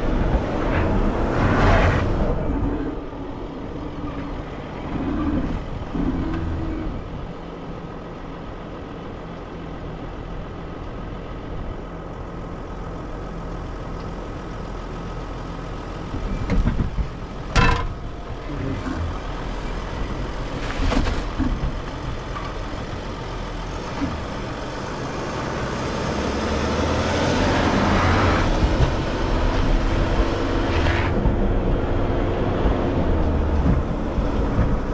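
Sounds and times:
van engine and tyre noise: 0.0 - 34.9
knocks from rough ground: 16.4 - 18.2.

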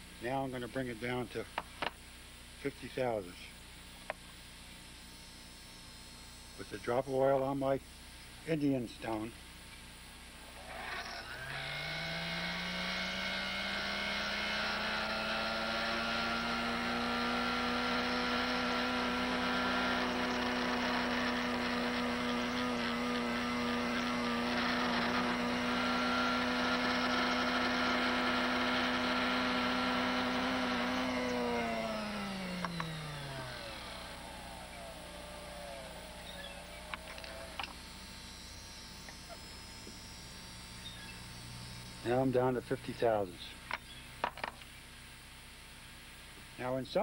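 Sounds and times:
lathe motor whine: 10.4 - 44.4.

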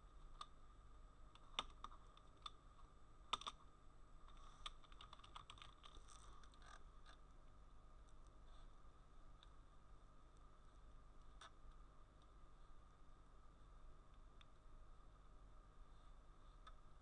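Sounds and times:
faint keyboard typing: 1.3 - 2.6, 3.3 - 3.6, 4.2 - 7.2.

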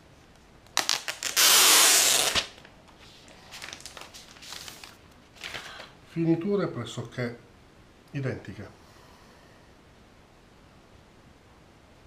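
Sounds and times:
plastic film tearing off: 0.7 - 2.7
plastic crinkling: 0.8 - 5.9.

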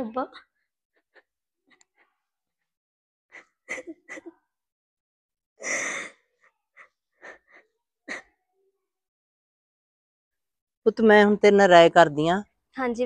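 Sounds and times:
woman crying: 3.7 - 4.3, 5.6 - 6.1, 6.8 - 8.3.

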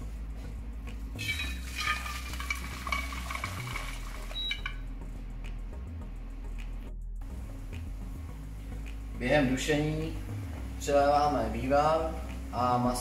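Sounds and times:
stock pouring through a sieve: 1.2 - 4.4.

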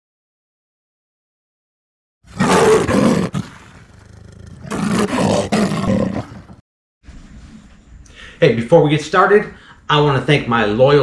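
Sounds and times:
roaring sound effect: 2.3 - 6.6.

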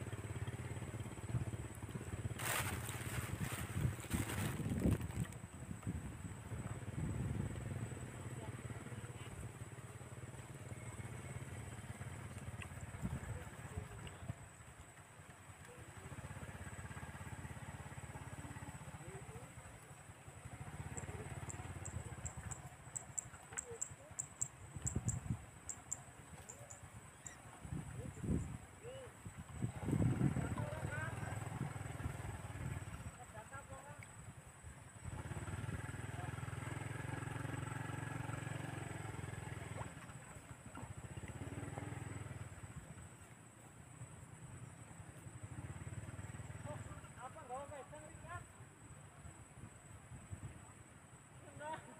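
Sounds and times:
small engine running: 0.0 - 5.4, 6.6 - 14.1, 15.0 - 24.1, 29.7 - 33.7, 35.0 - 43.1, 44.3 - 47.7.

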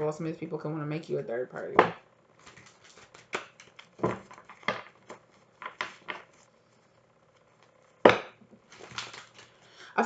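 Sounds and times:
cards being shuffled: 2.4 - 6.5, 8.6 - 9.6.

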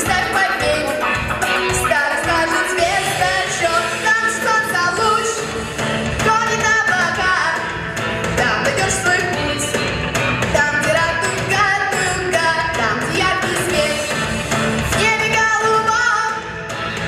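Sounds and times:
boy singing into a microphone: 0.0 - 1.1, 1.7 - 5.4, 6.2 - 7.7, 10.5 - 14.1, 14.9 - 16.5
pop accompaniment with steady beat: 0.0 - 17.0.

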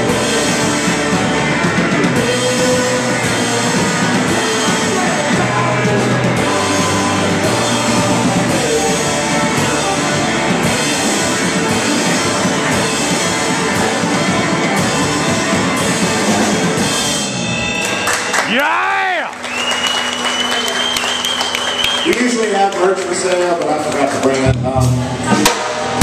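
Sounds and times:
man singing: 0.0 - 12.4
electric guitar: 0.0 - 22.0
drum kit: 0.0 - 26.0.

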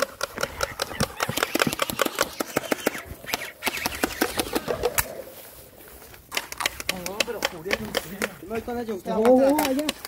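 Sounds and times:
gel blasters firing: 0.6 - 5.0.

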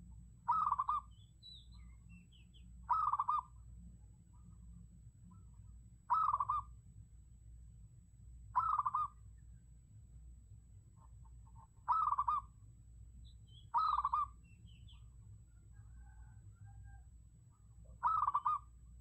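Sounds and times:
faint low hum: 0.0 - 19.0
dove decoy trilled coos: 0.5 - 1.1, 2.9 - 3.6, 6.1 - 6.7, 8.5 - 9.2, 11.8 - 12.5, 13.7 - 14.4, 15.7 - 17.0, 17.9 - 18.8.

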